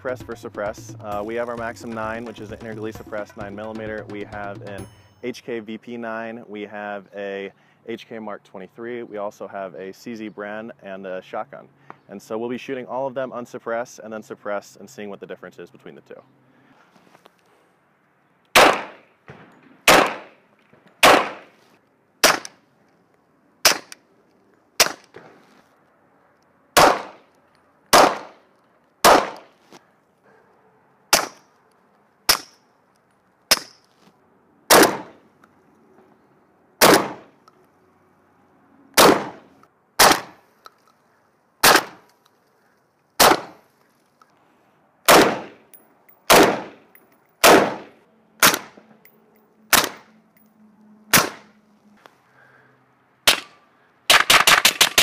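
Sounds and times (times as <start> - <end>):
pistol gunshots: 18.5 - 20.4, 21.0 - 21.5, 22.2 - 22.6, 23.6 - 24.0, 24.8 - 25.3, 26.8 - 27.2, 27.9 - 28.4, 29.0 - 29.5, 31.1 - 31.4, 34.7 - 35.2, 36.8 - 37.3, 39.0 - 39.4, 40.0 - 40.4, 41.6 - 42.0, 43.2 - 43.6, 45.1 - 45.6, 46.2 - 48.8, 49.7 - 50.1, 51.1 - 51.5, 53.3 - 55.0
suppressed pistol gunshots: 18.5 - 20.4, 21.0 - 21.5, 26.8 - 27.2, 27.9 - 28.4, 29.0 - 29.5, 34.7 - 35.2, 36.8 - 37.3, 39.0 - 39.4, 40.0 - 40.4, 41.6 - 42.0, 43.2 - 43.6, 45.1 - 45.6, 46.3 - 46.8, 47.4 - 48.8, 49.7 - 50.1, 51.1 - 51.5
rifle gunshots: 18.6 - 20.4, 21.0 - 21.5, 26.8 - 27.2, 27.9 - 28.4, 29.0 - 29.4, 34.7 - 35.2, 36.8 - 37.3, 39.0 - 39.4, 43.2 - 43.6, 45.1 - 45.6, 46.3 - 46.8, 47.4 - 48.8, 54.1 - 55.0.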